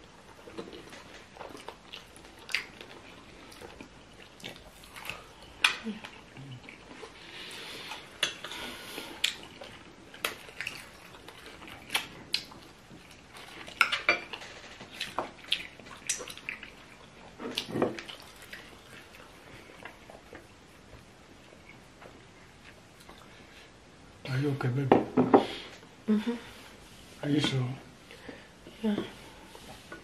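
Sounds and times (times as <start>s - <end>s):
person chewing: 0.1s - 20.6s, 22.6s - 23.4s.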